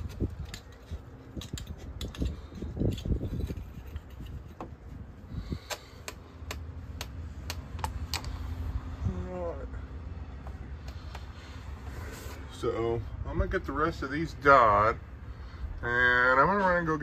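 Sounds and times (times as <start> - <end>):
sharp evenly spaced clicks: 5.7 - 8.3.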